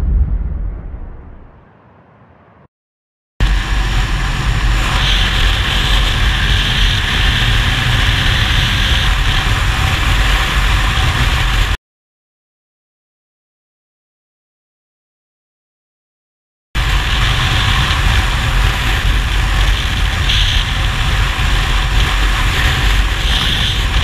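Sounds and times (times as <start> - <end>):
wind noise on microphone: 0.0 - 1.7, 3.4 - 11.8, 16.8 - 24.0
motorcycle engine running: 3.4 - 11.7.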